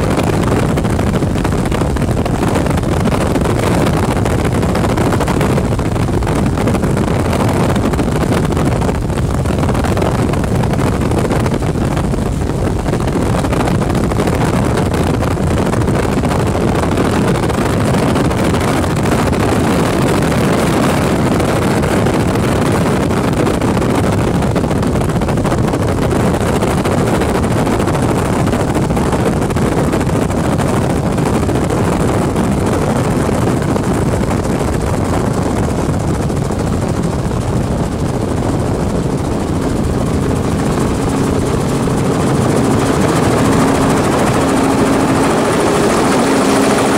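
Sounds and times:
helicopter engine and rotor drone: 0.0 - 46.9
wind rush: 0.0 - 46.9.

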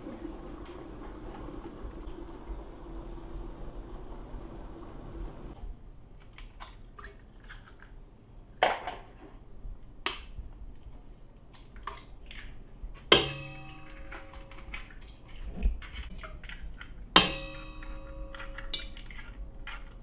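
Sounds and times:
metal clank: 13.1 - 14.9, 17.2 - 19.9
metal bowl ringing from knock: 13.2 - 14.6, 17.2 - 18.9.

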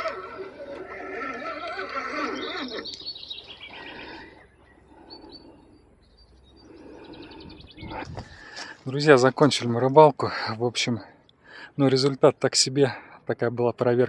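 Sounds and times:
wavering animal calls: 0.0 - 8.6
bird chirps: 1.5 - 8.6.

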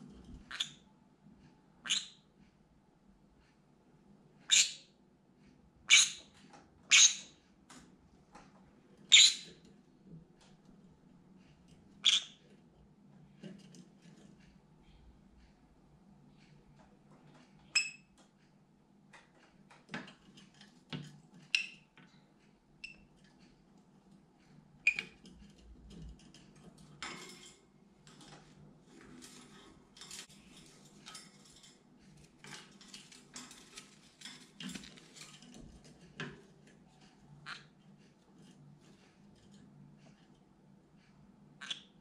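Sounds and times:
bird scrabbling on wire cage: 25.0 - 36.6.

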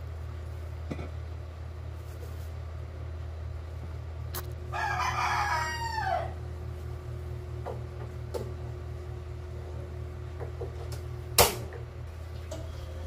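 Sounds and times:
steady low hum: 0.0 - 13.0
rooster crowing: 4.7 - 6.5.

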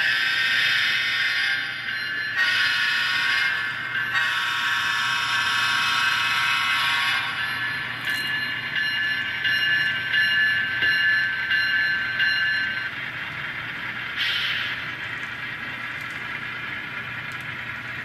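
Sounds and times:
train cars clicking over track: 7.8 - 18.0.

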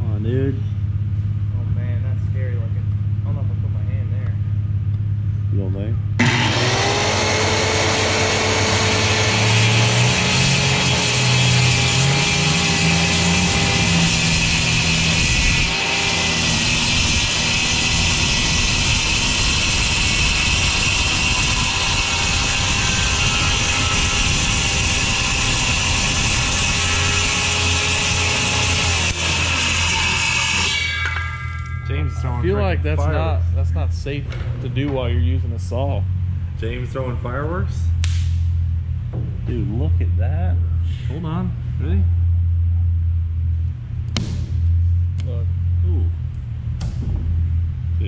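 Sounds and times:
circular saw cutting plastic: 6.2 - 32.6.

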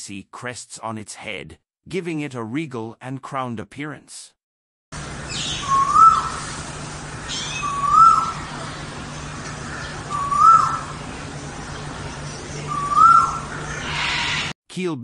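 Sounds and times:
pigeon hooting: 5.3 - 6.5, 7.2 - 8.8, 9.6 - 11.0, 12.6 - 14.5.

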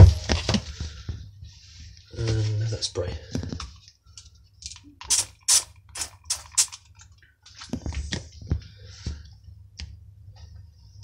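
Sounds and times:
spray bottle hissing sprays: 5.0 - 6.8.

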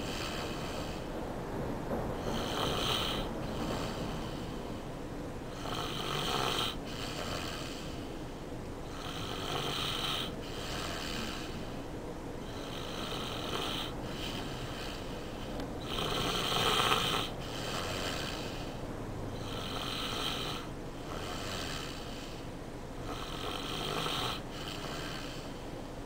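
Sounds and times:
boy snoring: 0.0 - 1.1, 2.2 - 4.6, 5.5 - 8.0, 8.9 - 11.8, 12.4 - 18.8, 19.4 - 22.4, 23.0 - 25.6.

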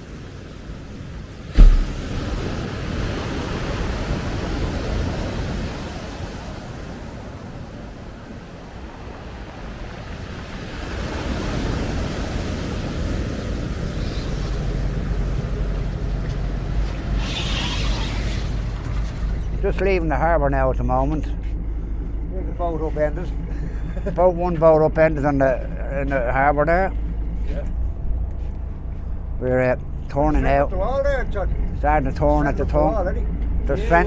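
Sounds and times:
heavy low rumble: 1.5 - 2.9, 18.6 - 34.0
surf breaking on rocks: 1.5 - 5.2.

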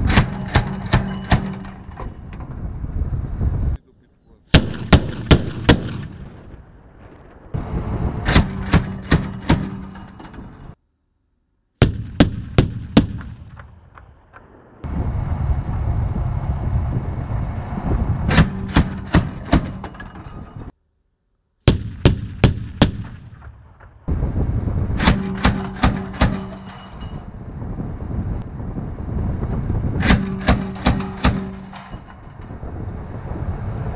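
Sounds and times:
steady rumble: 0.0 - 3.8, 4.5 - 10.8, 11.8 - 33.9
automatic cannon firing bursts: 4.5 - 7.4, 8.1 - 10.2, 11.8 - 14.8, 18.3 - 20.1, 21.7 - 24.1, 24.9 - 26.7, 30.0 - 32.3.

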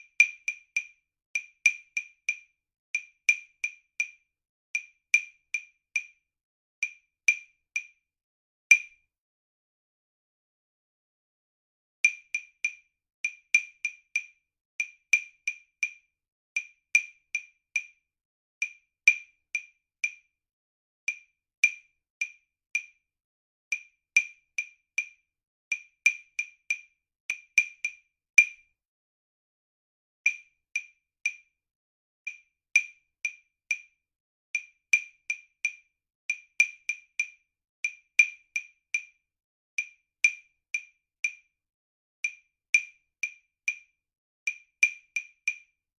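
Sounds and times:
wood-block clicks: 0.0 - 4.2, 4.8 - 6.2, 6.8 - 8.0, 8.7 - 9.0, 12.0 - 16.0, 16.6 - 18.0, 18.6 - 20.3, 21.1 - 23.0, 23.7 - 28.7, 30.2 - 31.5, 32.2 - 33.9, 34.5 - 39.2, 39.8 - 41.5, 42.2 - 43.9, 44.5 - 45.8.

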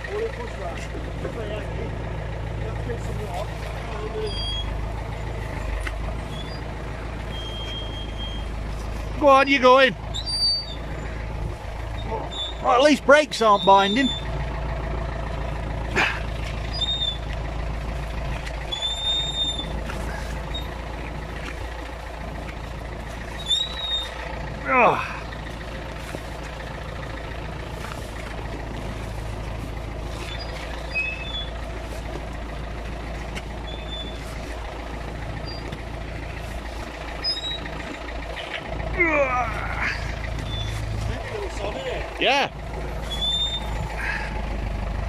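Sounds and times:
engine idling: 0.0 - 45.0
high-pitched squeals: 5.5 - 8.7, 18.6 - 20.9, 23.2 - 24.8, 43.0 - 44.3.

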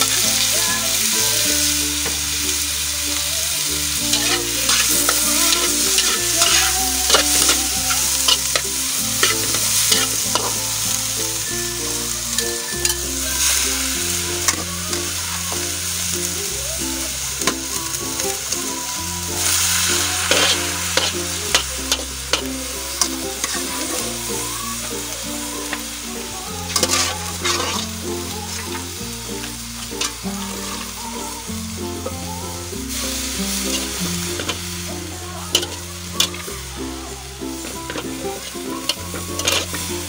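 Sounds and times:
soft background music: 0.0 - 40.0
vegetables sizzling in oil: 0.0 - 40.0
metal spatula scraping a wok: 3.9 - 11.5, 12.3 - 16.0, 17.4 - 24.2, 26.6 - 28.8, 30.0 - 30.9, 33.0 - 36.7, 37.5 - 40.0.

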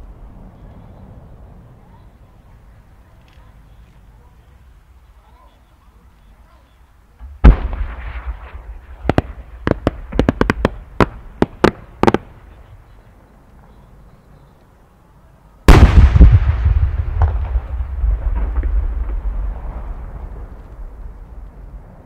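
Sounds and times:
firework launch report: 0.0 - 13.7, 15.6 - 22.0
sharp firework pops: 7.2 - 12.4, 15.7 - 21.5
firework shell bursting boom: 15.7 - 19.3.

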